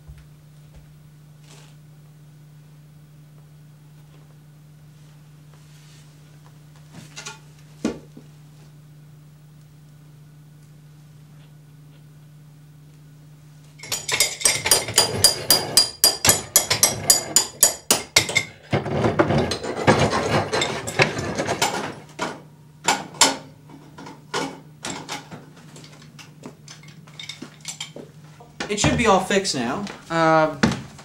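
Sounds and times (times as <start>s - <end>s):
faint low hum: 0.0s - 14.0s
hammer striking metal: 13.8s - 18.4s
metal clattering and clanking: 18.2s - 22.4s.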